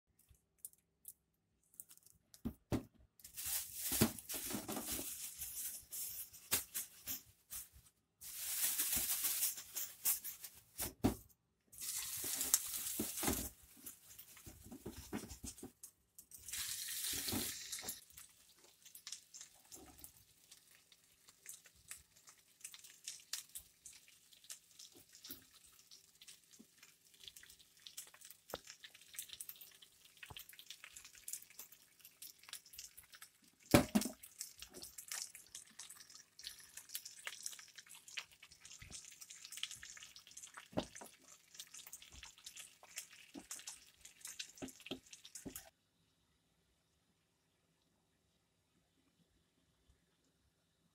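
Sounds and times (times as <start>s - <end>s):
fish sizzling in oil: 11.8s - 14.5s, 16.4s - 45.7s.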